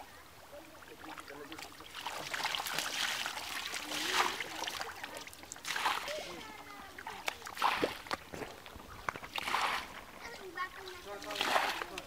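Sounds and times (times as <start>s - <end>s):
water sloshing and splashing: 0.6s - 12.0s.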